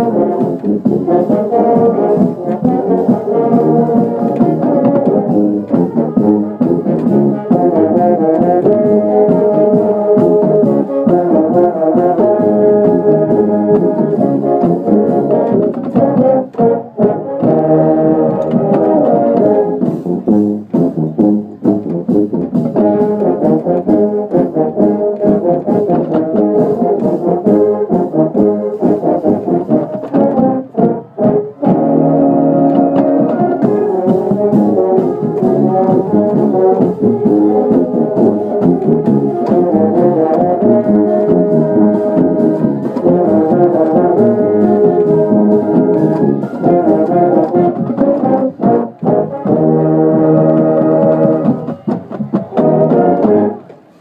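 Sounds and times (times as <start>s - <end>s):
marching band playing: 0.0s - 54.0s.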